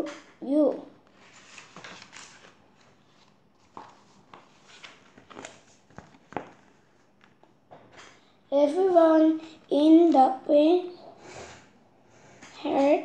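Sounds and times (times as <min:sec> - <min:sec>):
paper rustling: 0:01.0 - 0:07.4
book pages turning: 0:01.0 - 0:07.5.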